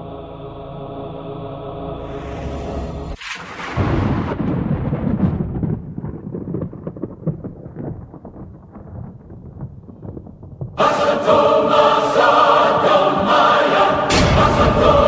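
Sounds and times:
thunder crash and rumble: 0:03.1 - 0:10.8, 0:14.1 - 0:15.0.

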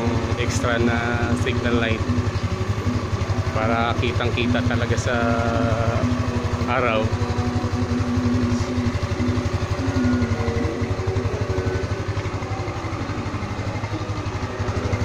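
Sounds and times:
scooter engine idling: 0:00.0 - 0:15.0.

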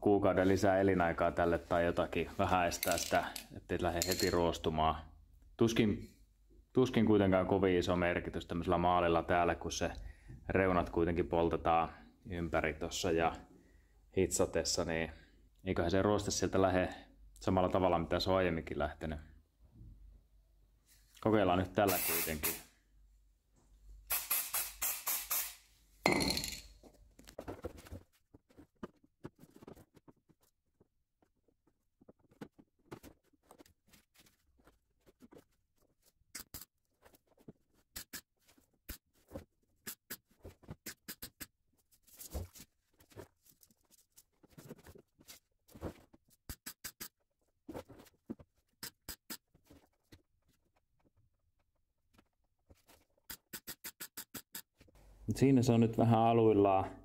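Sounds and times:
aerosol spray can hissing: 0:21.9 - 0:22.7, 0:24.1 - 0:25.6.

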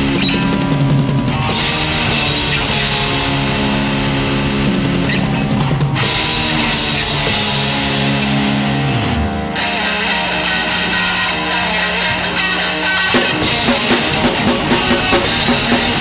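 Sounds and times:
live rock band playing: 0:00.0 - 0:11.5, 0:13.0 - 0:16.0
cymbal crashes: 0:13.2 - 0:16.0.

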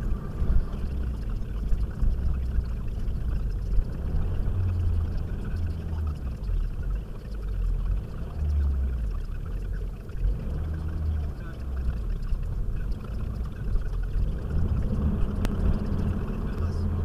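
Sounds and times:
car engine and road rumble: 0:00.0 - 0:17.0.

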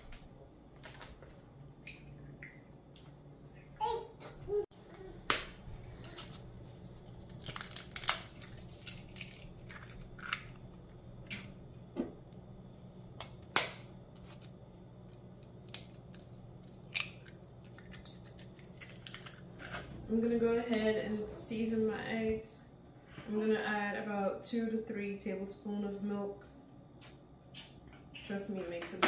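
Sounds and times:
eggshells cracking: 0:05.3 - 0:11.6, 0:13.2 - 0:19.8.

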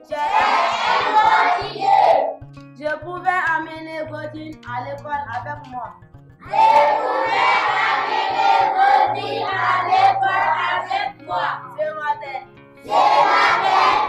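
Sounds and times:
children chanting in unison: 0:00.2 - 0:02.4, 0:06.5 - 0:11.1, 0:12.9 - 0:14.0.

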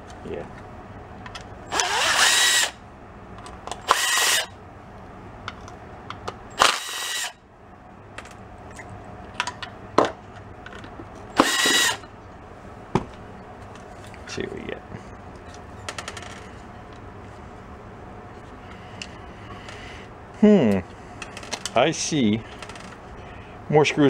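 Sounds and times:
cordless driver whining: 0:01.7 - 0:02.8, 0:03.7 - 0:04.6, 0:06.6 - 0:07.4, 0:11.4 - 0:12.1.

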